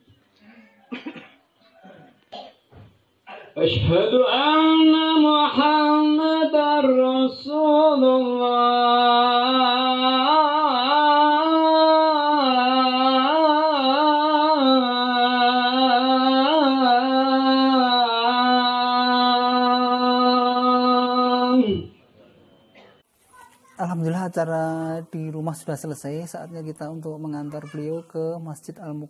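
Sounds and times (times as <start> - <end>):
man chanting into a microphone: 3.5 - 22.0.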